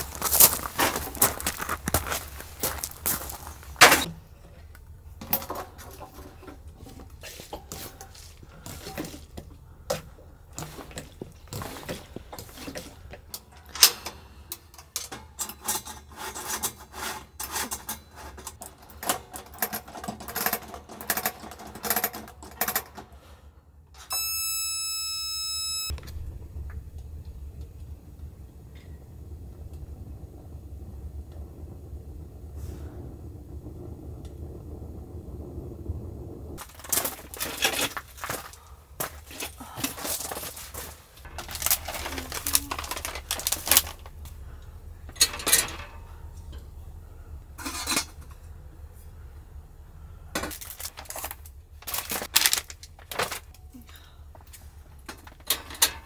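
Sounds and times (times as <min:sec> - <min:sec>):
steady low heater rumble: 0:00.0 - 0:16.3, 0:23.1 - 0:56.0
high electric igniter buzz: 0:24.0 - 0:35.3.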